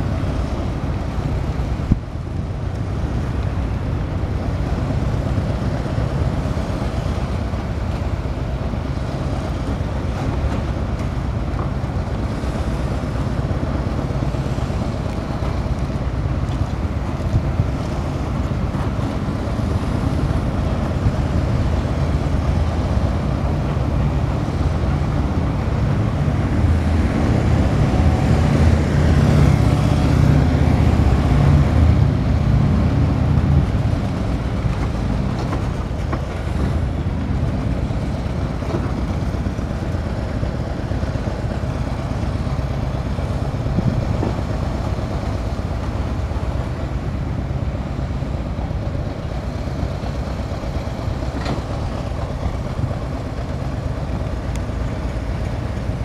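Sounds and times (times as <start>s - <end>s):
vehicles driving slowly past: 0.0s - 56.0s
wind buffeting microphone: 0.0s - 56.0s.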